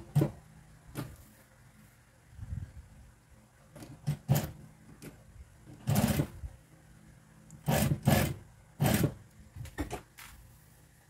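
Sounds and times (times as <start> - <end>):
sewing machine stitching: 3.9 - 4.6, 5.8 - 6.4, 7.6 - 9.2.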